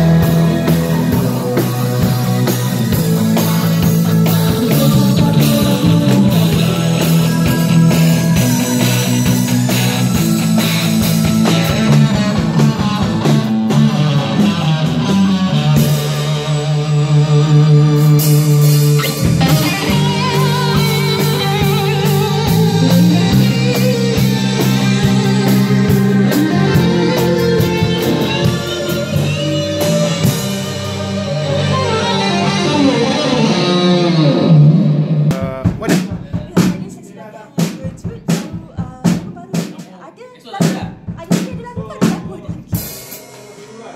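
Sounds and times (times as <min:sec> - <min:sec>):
live rock band playing: 0:00.0 - 0:43.9
woman singing: 0:00.1 - 0:09.4, 0:36.3 - 0:42.9.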